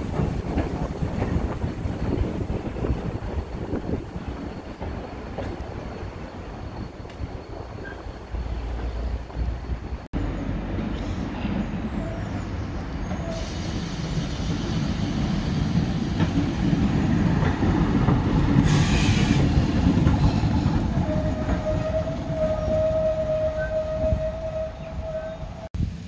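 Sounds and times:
railcar engine and wheels rumbling: 0.0s - 26.0s
hiss burst: 13.3s - 16.7s, 18.6s - 19.7s.

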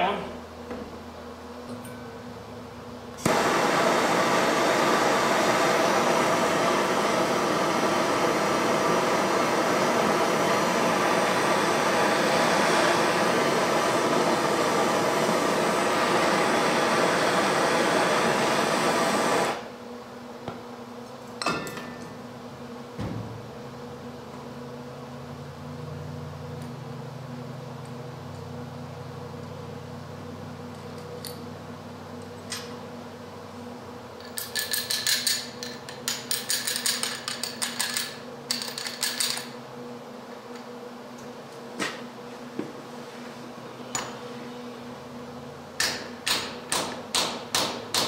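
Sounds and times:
gas torch hissing: 3.2s - 19.8s.

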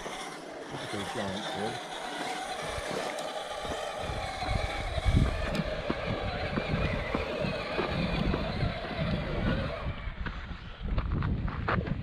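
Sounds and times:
electric motor whining: 0.0s - 11.1s.

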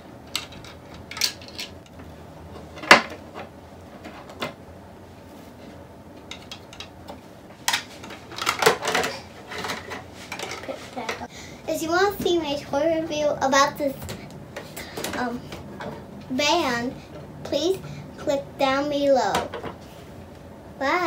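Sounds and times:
plastic toys clicking and knocking: 0.3s - 1.8s, 6.2s - 11.3s.

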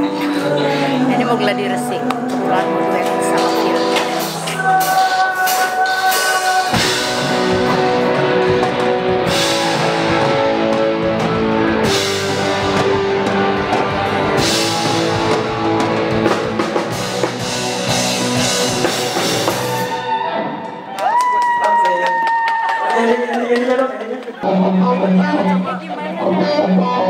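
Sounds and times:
rock music with drums and guitars: 0.0s - 21.0s.

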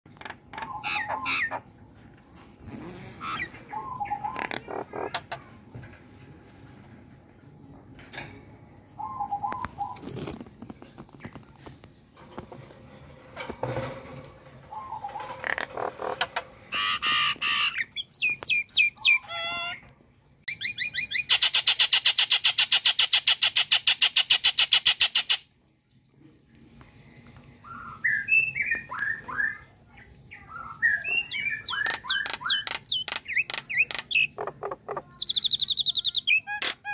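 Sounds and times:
bird chattering notes: 31.0s - 36.9s.

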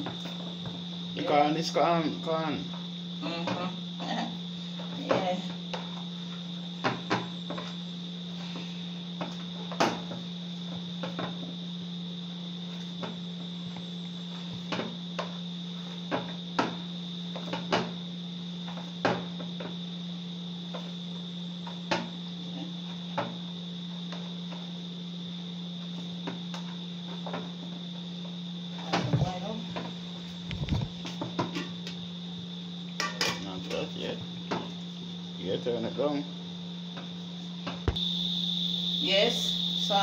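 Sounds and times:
high-pitched whine: 36.9s - 40.0s
low hum: 37.4s - 40.0s.

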